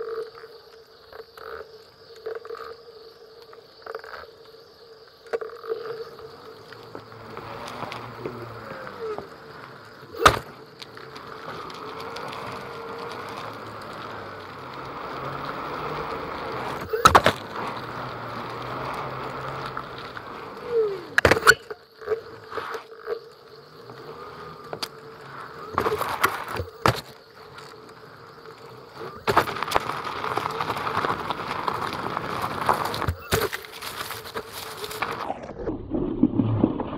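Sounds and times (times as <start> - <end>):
gravel rattle: 0.0 - 36.9
tyre rumble: 5.9 - 22.8, 23.6 - 36.9
electric motor whine: 6.1 - 22.5, 23.4 - 35.2
sharp knocks through board: 10.2 - 10.4.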